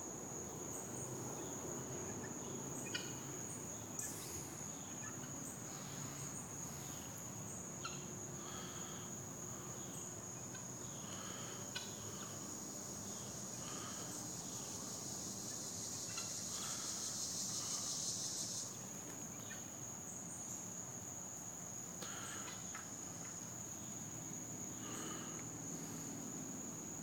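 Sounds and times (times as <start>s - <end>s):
insects trilling: 0.0s - 27.0s.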